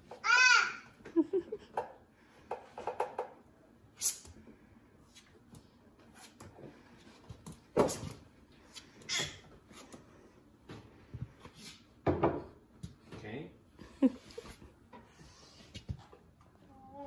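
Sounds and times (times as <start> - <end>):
knocks and clicks at a counter: 1.7 - 3.4.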